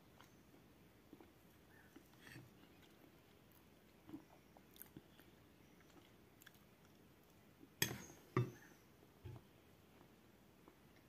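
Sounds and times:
chewing food: 0.0 - 7.8.

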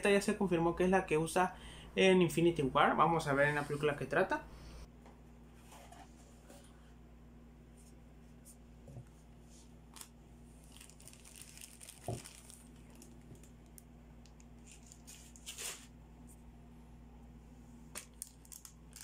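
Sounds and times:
plastic bag crinkling: 9.9 - 15.9, 18.0 - 19.0.

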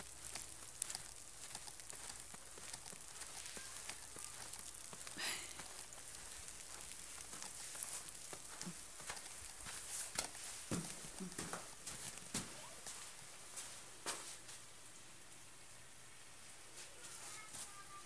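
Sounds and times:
snow pattering: 0.0 - 13.7.

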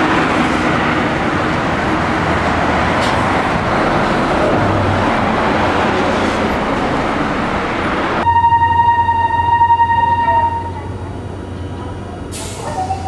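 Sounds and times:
bus driving past: 0.0 - 8.3
road traffic noise: 0.0 - 13.0.

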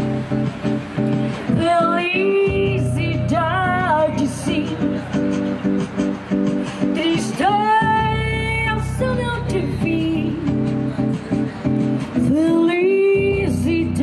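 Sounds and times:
bass line: 0.0 - 14.0
plucked string accompaniment: 0.0 - 14.0
woman singing: 1.4 - 5.3, 6.8 - 10.9, 12.2 - 14.0.

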